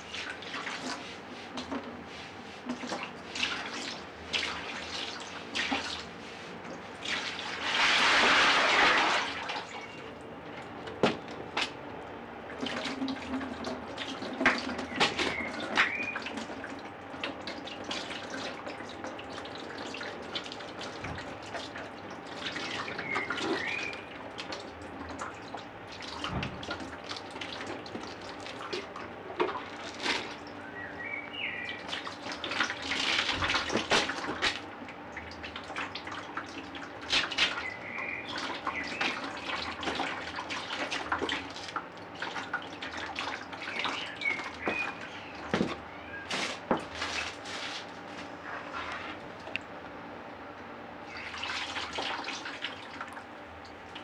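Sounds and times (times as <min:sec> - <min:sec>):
liquid dripping and trickling: 0:11.5 - 0:47.4, 0:51.0 - 0:54.0.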